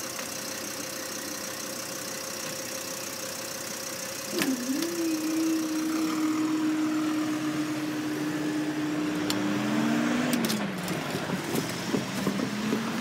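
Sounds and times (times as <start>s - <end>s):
crossing barriers humming: 0.0s - 13.0s
cars driving over crossing: 4.2s - 13.0s.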